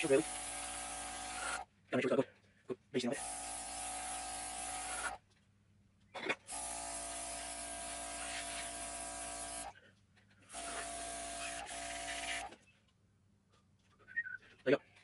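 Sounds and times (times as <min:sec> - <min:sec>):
small electric motor running: 0:00.0 - 0:01.7, 0:03.0 - 0:05.2, 0:06.5 - 0:09.8, 0:10.5 - 0:12.6.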